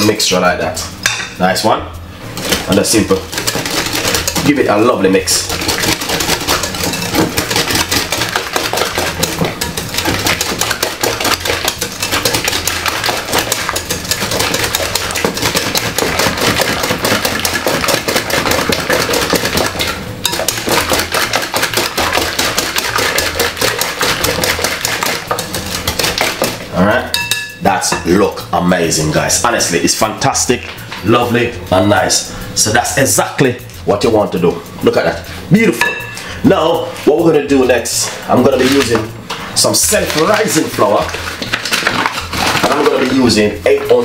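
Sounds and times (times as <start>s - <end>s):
utensil clattering against bowl: 2.4s - 28.1s, 38.3s - 44.0s.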